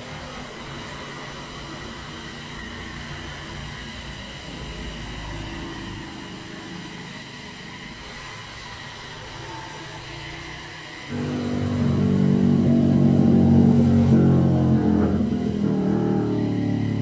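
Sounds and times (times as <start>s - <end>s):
motorcycle engine rumble: 11.1s - 17.0s
sport bike engine revving: 11.1s - 17.0s.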